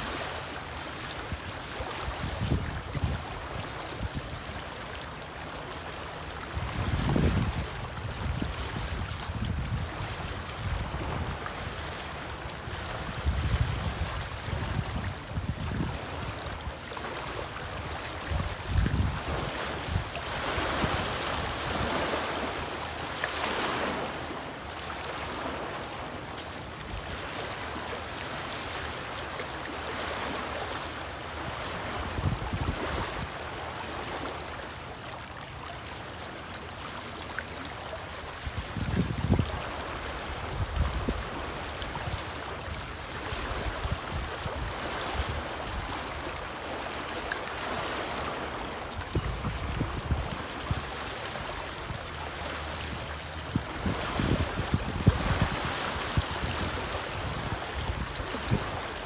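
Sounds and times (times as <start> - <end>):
waves lapping against rocks: 0.0 - 59.0
wind buffeting microphone: 2.2 - 3.3, 6.5 - 11.7, 12.8 - 16.6, 17.8 - 22.1, 32.0 - 33.2, 38.4 - 42.8, 49.0 - 51.0, 52.9 - 59.0.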